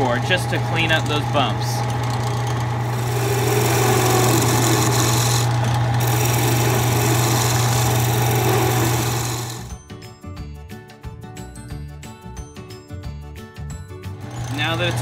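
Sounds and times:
lathe motor hum: 0.0 - 9.7, 14.2 - 15.0
gouge shaving wood hiss: 2.9 - 9.7.

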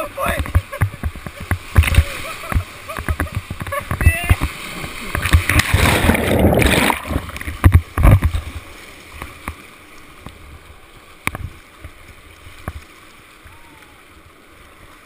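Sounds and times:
whitewater rushing: 0.0 - 15.0
knocks and water drips: 0.3 - 4.5, 5.1 - 8.4.

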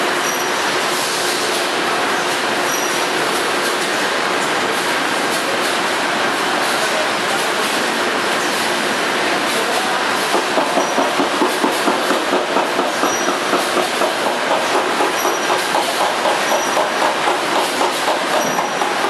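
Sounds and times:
packaging machines clattering: 0.0 - 19.0
regular machine clacking: 9.8 - 19.0.

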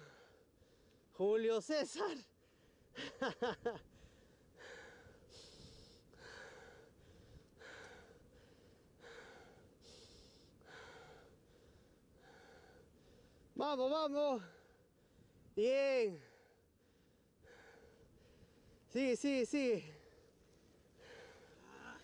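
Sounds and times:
person panting heavily: 0.0 - 0.9, 3.8 - 13.4, 16.2 - 18.8, 21.0 - 22.0.

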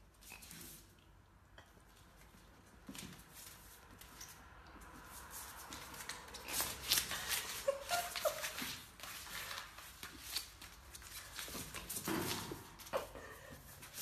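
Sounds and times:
dog scuffling with a toy: 2.6 - 13.0.

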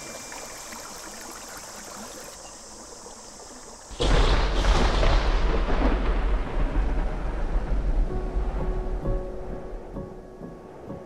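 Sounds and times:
rushing stream water: 0.0 - 4.8
heavy rain: 3.9 - 9.9
deep rumbling thunder: 3.9 - 10.2.

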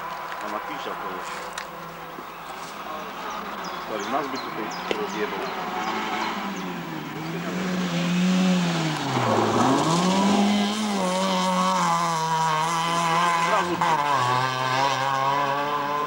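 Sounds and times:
rally car engine revving: 3.0 - 16.0.

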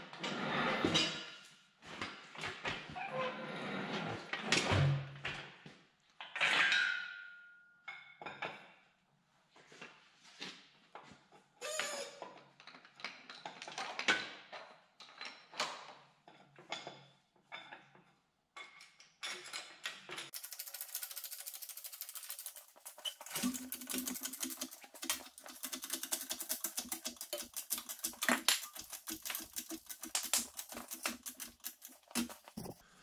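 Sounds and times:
hoist pump clicking and rattling: 20.3 - 32.8.

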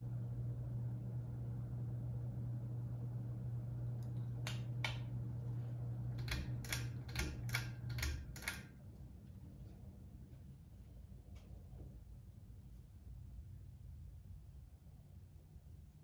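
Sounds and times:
ceiling fan humming: 0.0 - 16.0
pull-chain switch clicking: 6.2 - 8.7.

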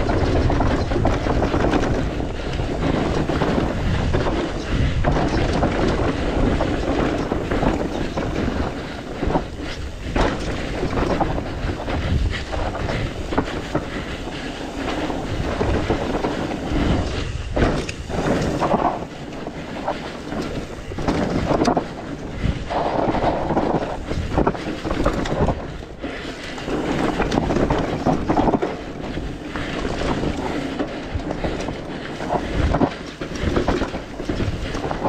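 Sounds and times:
bike clattering over bumps: 0.0 - 35.0
wind buffeting microphone: 0.0 - 35.0.

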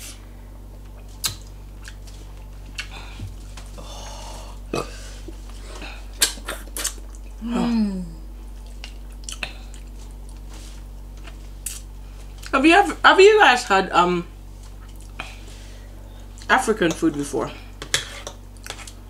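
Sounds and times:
mouth clicks and smacks: 1.2 - 2.0, 6.2 - 7.3
short burp: 4.7 - 5.1.

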